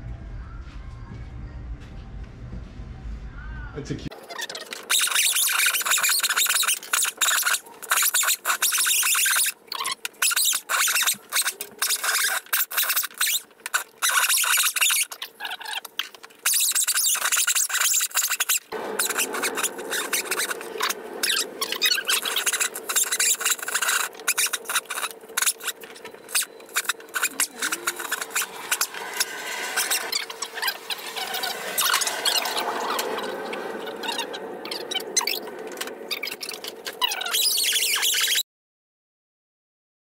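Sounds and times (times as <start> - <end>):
grinder brush scrubbing metal: 18.4 - 33.4
steady hum: 18.7 - 37.0.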